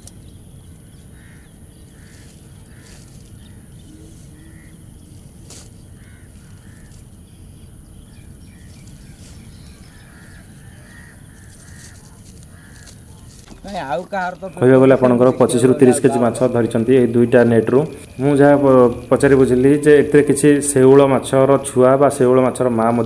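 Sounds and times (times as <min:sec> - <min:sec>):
steady low rumble: 0:00.0 - 0:23.0
crow-like caws: 0:01.1 - 0:04.8, 0:05.9 - 0:07.0, 0:09.8 - 0:13.8.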